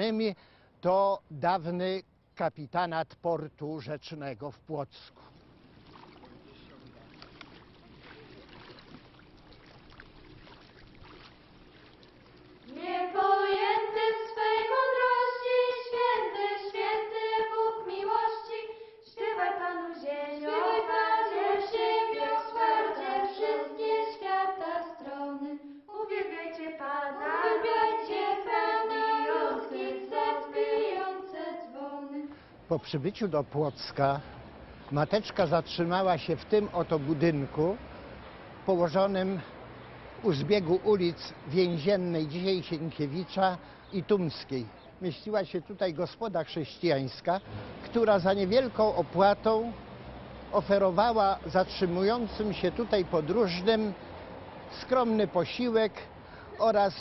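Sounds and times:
faint background noise: 0.0 - 57.0
choir singing a slow hymn: 12.6 - 32.4.

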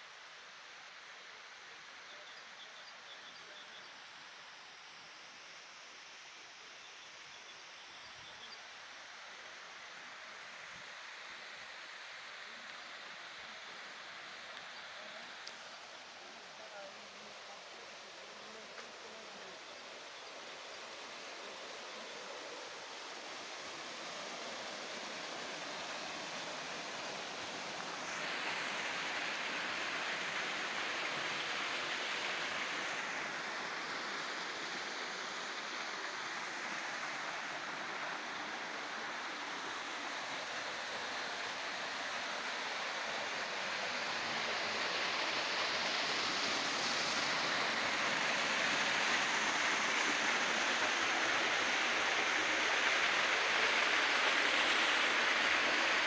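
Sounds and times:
waterfall splashing into pool: 41.1 - 56.0.

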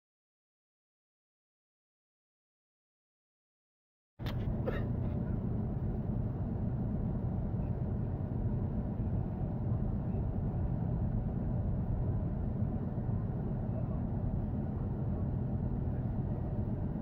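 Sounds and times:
bus engine and road rumble: 4.2 - 17.0.

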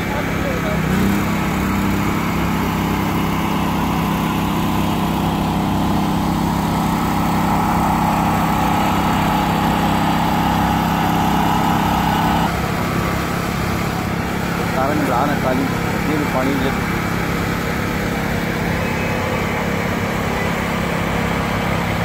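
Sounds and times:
small pump engine running: 0.0 - 22.0.

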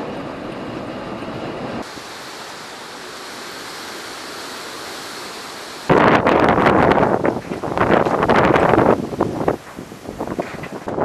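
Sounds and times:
surf breaking against seawall: 1.8 - 11.0
water hiss: 1.8 - 11.0
wind gust on microphone: 5.8 - 11.0.

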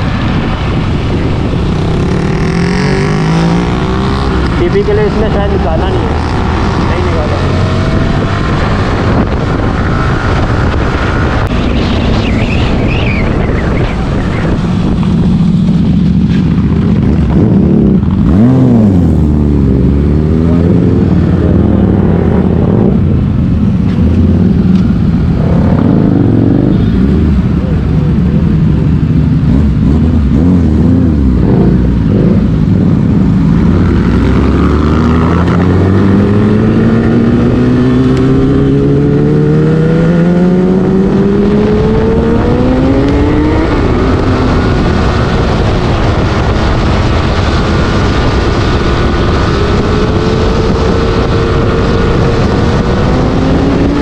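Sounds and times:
motorcycle engine running: 13.9 - 20.6.

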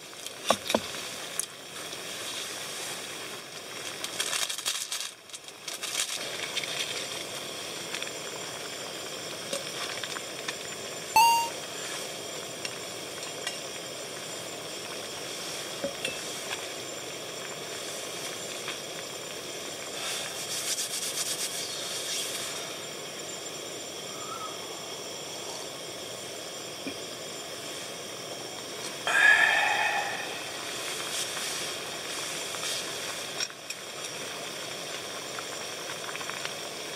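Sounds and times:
gas stove hissing: 6.2 - 11.1, 11.8 - 20.8, 21.4 - 36.9.

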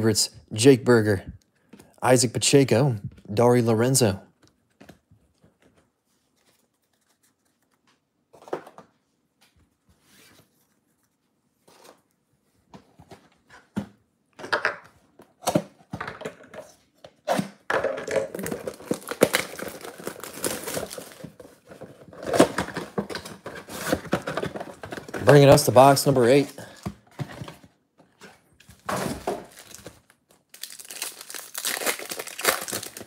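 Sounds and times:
wrapping crinkling and tearing: 18.3 - 26.5, 29.4 - 33.0.

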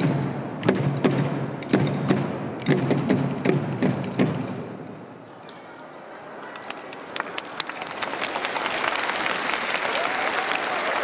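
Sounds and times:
audience applauding: 6.7 - 11.0.

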